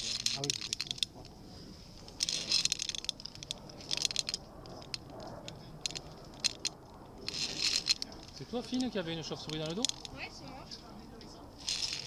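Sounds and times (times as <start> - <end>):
metal gear clinking: 0.0 - 1.1, 2.2 - 4.4, 5.9 - 8.1, 11.6 - 12.0.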